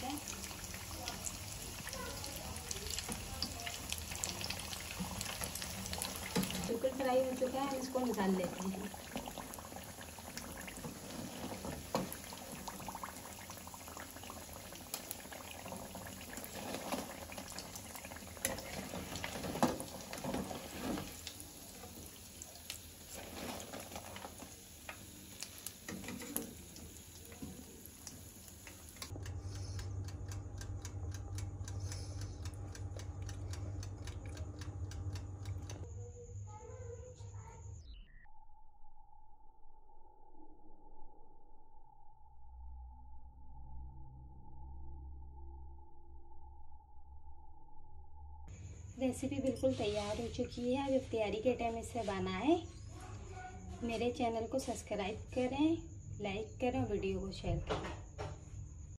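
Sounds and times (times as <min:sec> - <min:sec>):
hot oil sizzling and bubbling: 0:00.0 - 0:35.9
steady low hum: 0:28.0 - 0:36.5.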